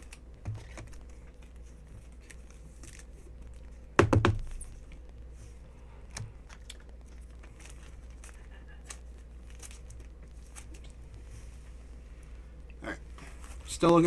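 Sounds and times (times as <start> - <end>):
low electrical hum: 0.0 - 14.0
trading cards knocked on table: 4.0 - 4.5.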